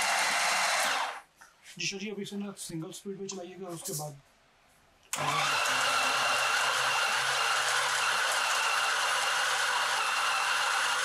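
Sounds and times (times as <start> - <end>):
food processor motor whining: 0.0 - 1.2, 5.2 - 11.0.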